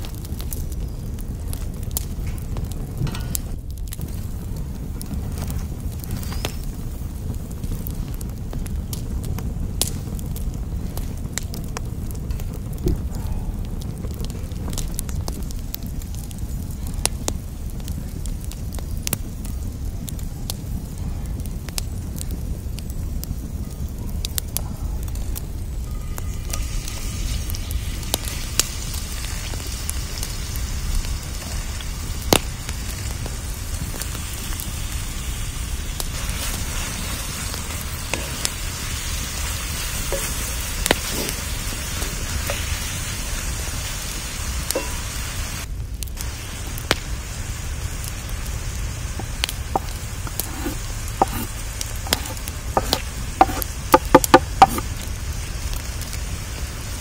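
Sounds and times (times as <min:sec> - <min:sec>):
onions sizzling in oil: 0:00.0 - 0:13.2, 0:25.2 - 0:57.0
sharp crackles and knocks: 0:00.0 - 0:30.2, 0:30.8 - 0:34.7, 0:35.9 - 0:47.2, 0:47.9 - 0:56.2.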